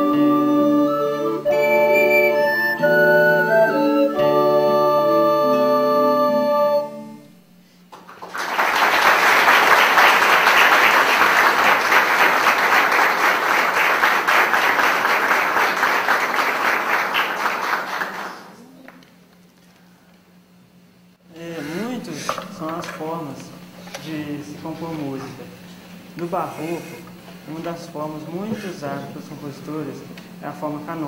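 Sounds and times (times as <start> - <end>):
recorder ensemble chord: 0.0 - 7.5
audience applauding: 7.9 - 18.6.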